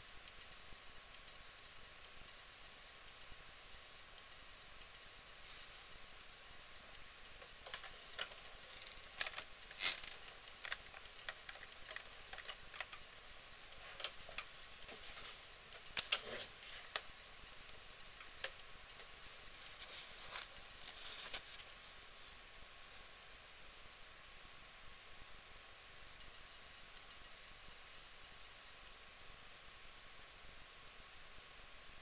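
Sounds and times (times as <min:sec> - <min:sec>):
faint hiss: 0:00.0 - 0:32.0.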